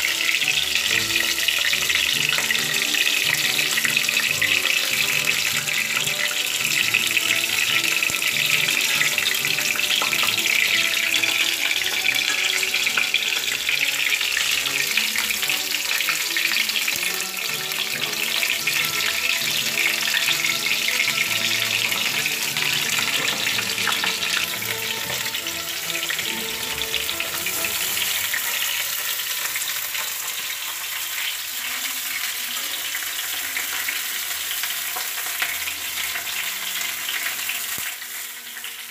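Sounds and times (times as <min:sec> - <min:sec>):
metal spatula turning food: 0:00.0 - 0:31.3
background music: 0:00.0 - 0:38.8
tomatoes sizzling in a pan: 0:00.0 - 0:38.9.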